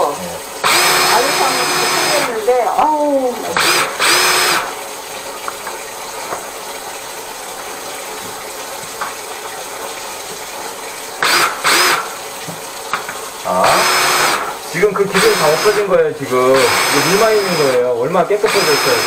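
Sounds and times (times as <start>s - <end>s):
power tool motor whining: 0.6s - 2.5s, 3.4s - 4.8s, 11.2s - 12.1s, 13.6s - 19.0s.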